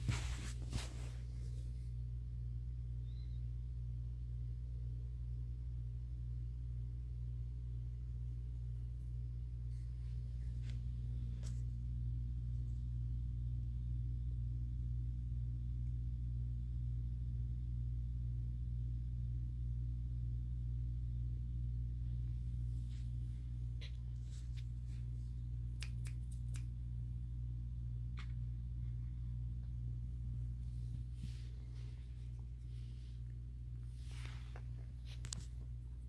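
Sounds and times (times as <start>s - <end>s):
low background hum: 0.0s - 36.0s
faint sharp clicks: 25.8s - 26.8s.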